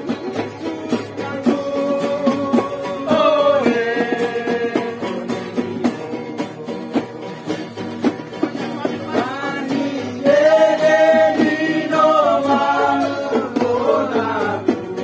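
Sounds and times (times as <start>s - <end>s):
men singing: 0.0s - 7.9s, 8.5s - 15.0s
acoustic guitar strumming: 0.0s - 15.0s
ukuleles strumming: 0.0s - 15.0s.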